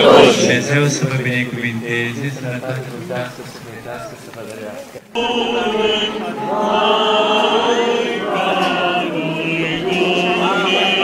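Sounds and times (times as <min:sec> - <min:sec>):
group singing chant: 0:00.0 - 0:01.8, 0:05.0 - 0:11.0.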